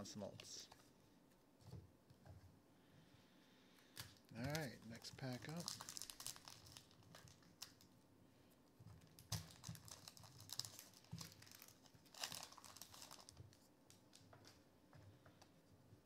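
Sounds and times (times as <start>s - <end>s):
wrapper crinkling and tearing: 4.0s - 8.0s, 9.0s - 14.6s.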